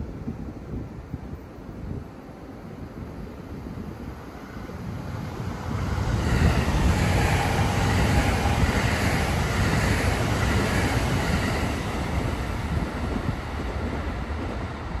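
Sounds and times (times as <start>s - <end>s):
train rumbling past: 3.5s - 15.0s.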